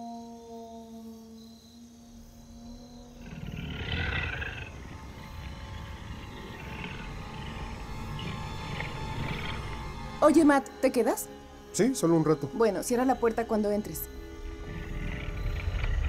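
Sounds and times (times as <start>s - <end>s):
dark drone: 0.0s - 16.0s
growl-like roar effect: 3.0s - 10.2s, 14.4s - 16.0s
low rumble: 3.8s - 10.3s.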